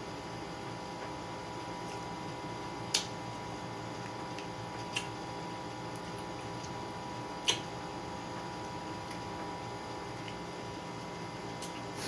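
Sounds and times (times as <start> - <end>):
steady background hum: 0.0 - 12.0
wet mouth smacks eating: 4.0 - 5.2, 7.4 - 7.7, 11.6 - 12.0.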